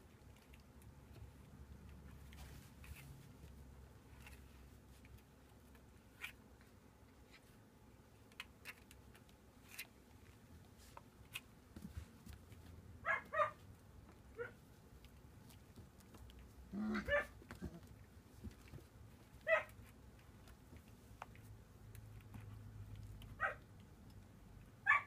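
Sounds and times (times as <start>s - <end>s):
paws scuffling on plastic floor: 1.0s - 7.6s, 8.5s - 21.6s.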